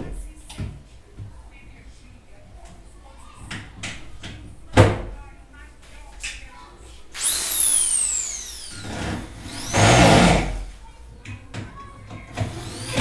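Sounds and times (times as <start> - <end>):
cordless drill whining: 7.2 - 10.7, 12.4 - 13.0.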